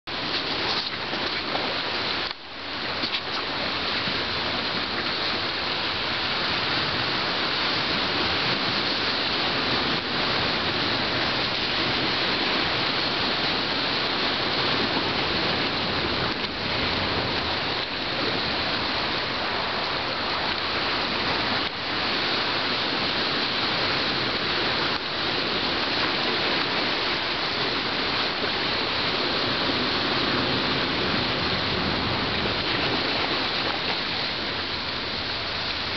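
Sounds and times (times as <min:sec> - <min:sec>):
ocean surf washing on shore: 0:00.0 - 0:35.9.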